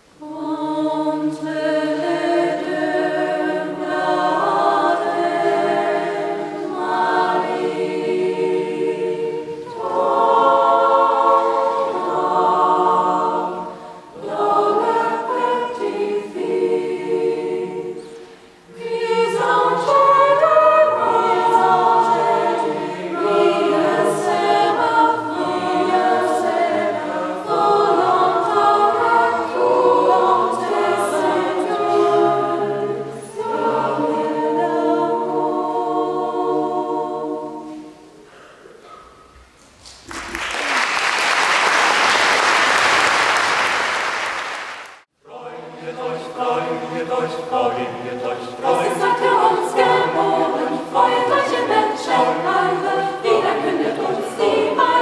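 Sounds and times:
mixed choir singing in harmony: 0:00.0 - 0:39.5, 0:45.1 - 0:55.0.

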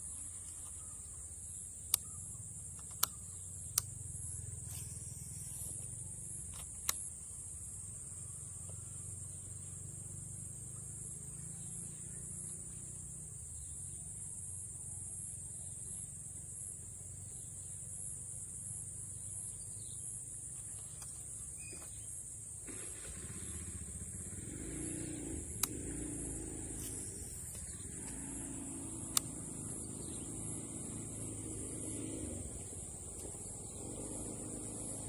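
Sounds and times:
high-pitched insect chorus: 0:00.0 - 0:35.0
sharp clicks: 0:02.7 - 0:04.0, 0:06.4 - 0:07.1, 0:24.8 - 0:30.1.

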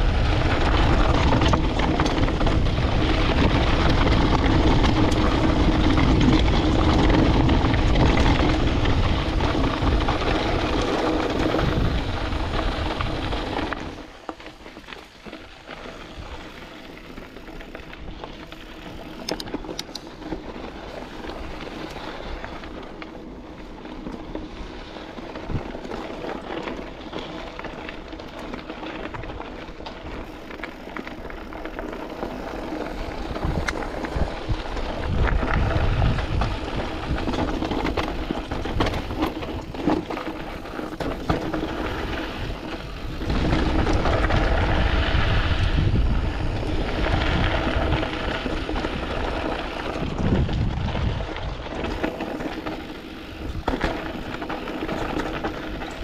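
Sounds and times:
wind buffeting microphone: 0:00.0 - 0:14.1, 0:29.1 - 0:56.0
bike frame rattling: 0:00.0 - 0:56.0
bike tyres crunching over gravel: 0:00.0 - 0:56.0.

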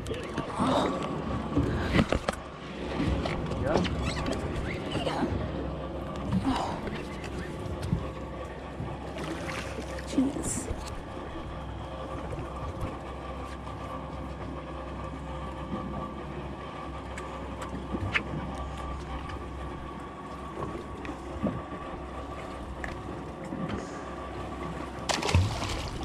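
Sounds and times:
boat engine idling: 0:00.0 - 0:26.0.

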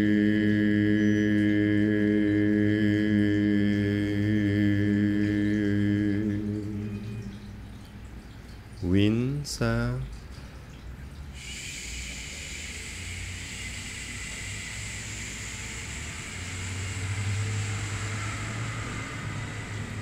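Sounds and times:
low hum: 0:00.0 - 0:20.0
unvoiced shhh exhale: 0:11.4 - 0:20.0.

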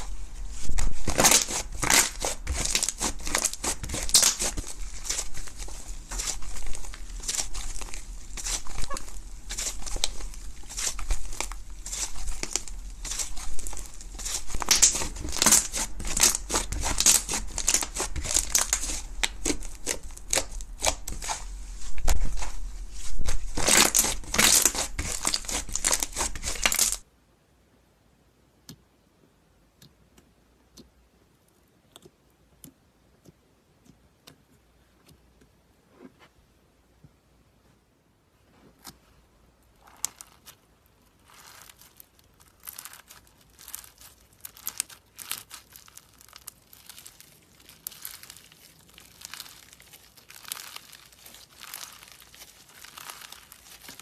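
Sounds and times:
slime crackling and popping: 0:00.0 - 0:27.0, 0:39.8 - 0:54.0.

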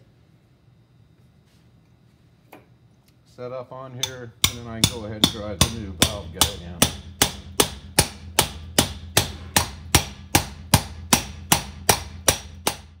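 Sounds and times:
hammer striking metal driver: 0:04.0 - 0:13.0.

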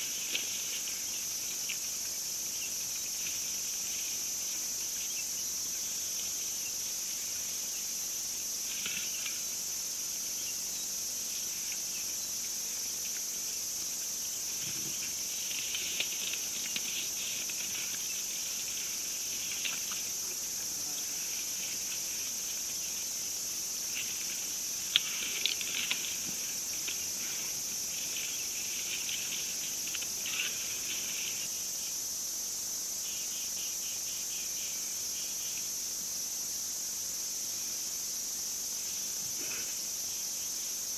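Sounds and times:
shrill insect chorus: 0:00.0 - 0:40.9
crackling and snapping: 0:14.6 - 0:18.1, 0:24.8 - 0:27.4.

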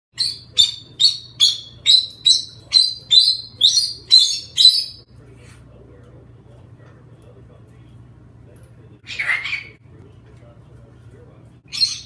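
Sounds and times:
cockatoo screeching: 0:09.0 - 0:09.8.

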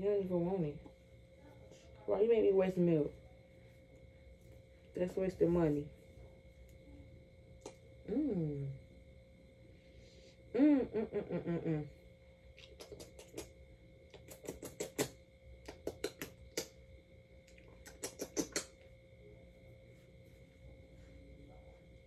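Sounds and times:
lip-smacking kisses: 0:07.6 - 0:07.8, 0:12.6 - 0:16.8, 0:17.5 - 0:18.8.

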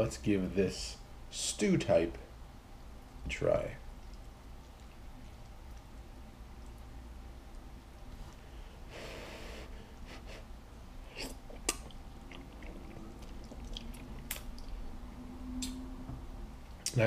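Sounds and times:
chewing with mouth clicks: 0:03.9 - 0:07.7, 0:11.1 - 0:15.0.

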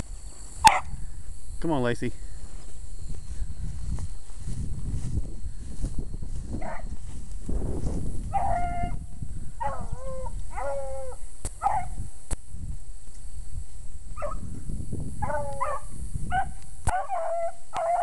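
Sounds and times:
dogs baying and howling: 0:00.6 - 0:01.0, 0:06.6 - 0:07.0, 0:08.3 - 0:09.0, 0:09.6 - 0:12.0, 0:14.2 - 0:14.5, 0:15.2 - 0:18.0.

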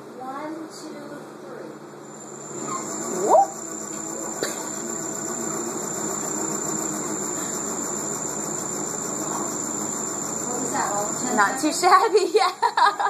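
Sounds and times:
treadmill motor humming and whining: 0:01.9 - 0:13.0.

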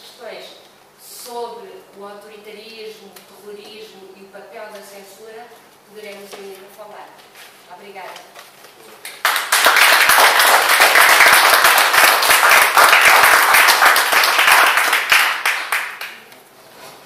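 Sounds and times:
audience applauding: 0:09.2 - 0:16.2.

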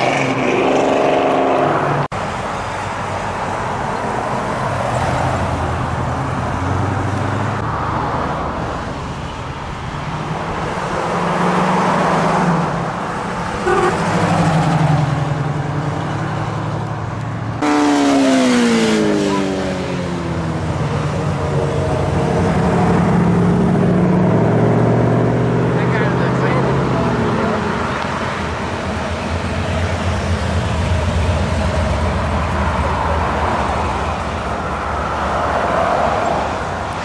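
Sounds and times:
loud engine passing: 0:10.4 - 0:36.9.

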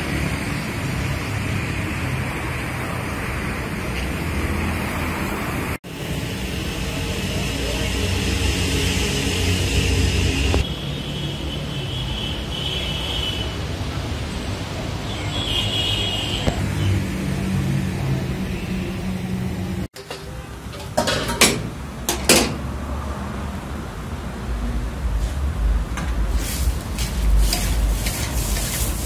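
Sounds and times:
road traffic rumble: 0:00.0 - 0:29.0
metal tongs clanking on pan: 0:20.0 - 0:22.6.

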